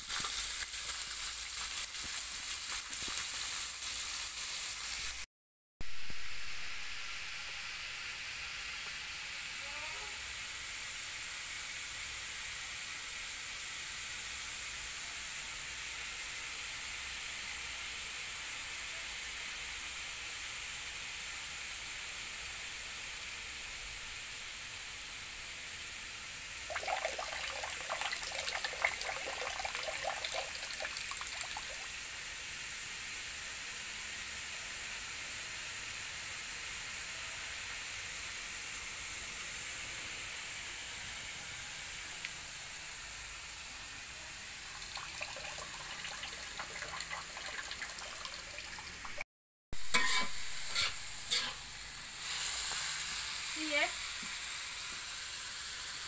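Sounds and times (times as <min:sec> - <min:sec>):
steady hiss: 0:00.0 - 0:49.2, 0:49.8 - 0:56.0
water splashing in a metal bowl: 0:26.6 - 0:32.0, 0:44.6 - 0:49.2.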